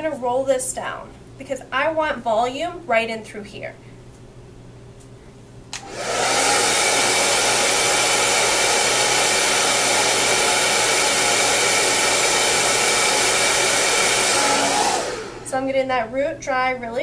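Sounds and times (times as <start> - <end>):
hair dryer switch click: 5.7 - 6.3
hair dryer blowing air: 5.8 - 15.9.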